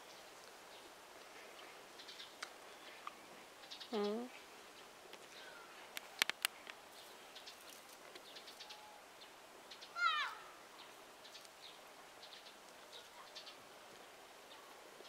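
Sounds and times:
faint bird chirps: 1.6s - 5.8s, 6.9s - 11.5s
sharp clicks: 5.9s - 6.8s
short falling animal call: 10.0s - 10.5s.

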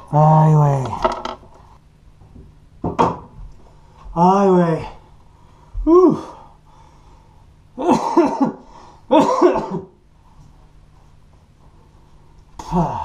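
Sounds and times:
man coughing and groaning: 7.8s - 10.0s.

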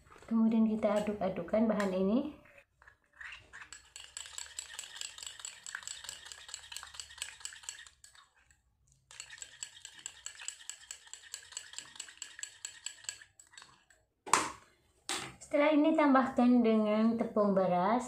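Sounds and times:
metal spoon scraping glass bowl: 2.4s - 14.0s.

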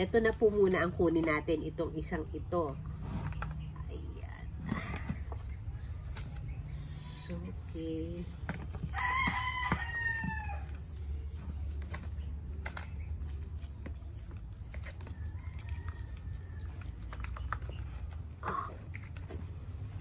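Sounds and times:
rooster crowing: 8.9s - 10.8s, 15.0s - 17.0s.

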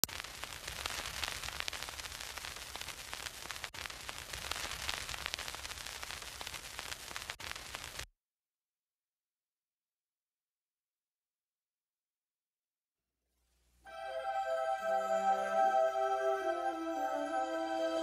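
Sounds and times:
old film crackle and hiss: 0.0s - 8.1s, 13.9s - 18.0s.

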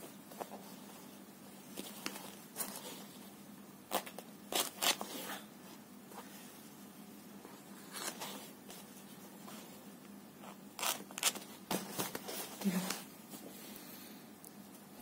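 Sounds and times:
faint steady hum: 0.0s - 15.0s
rustling and scraping on paper: 0.2s - 3.3s, 7.5s - 9.8s, 10.4s - 13.5s.

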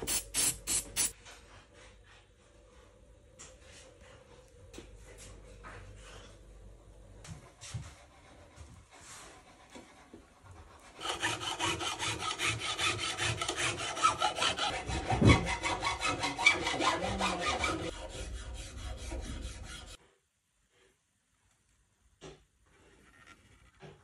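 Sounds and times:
file rubbing on guitar frets: 11.0s - 20.0s.

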